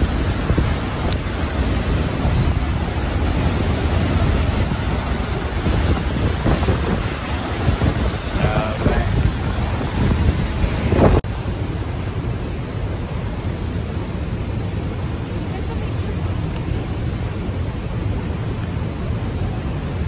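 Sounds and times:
wind buffeting microphone: 0:00.0 - 0:11.2
waterfall rushing: 0:00.0 - 0:20.0.

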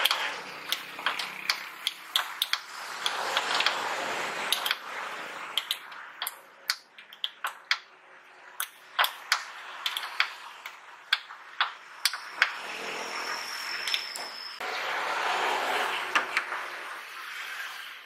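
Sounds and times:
wrench clicking on metal bolt: 0:00.0 - 0:03.8, 0:04.5 - 0:04.8
high-pitched whine: 0:12.2 - 0:16.3.

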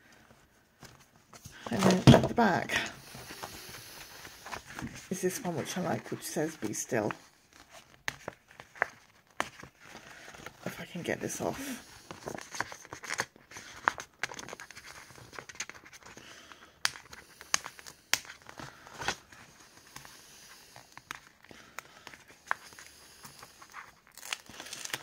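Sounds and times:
paper crinkling: 0:03.0 - 0:10.9, 0:11.6 - 0:20.1, 0:20.7 - 0:25.0.

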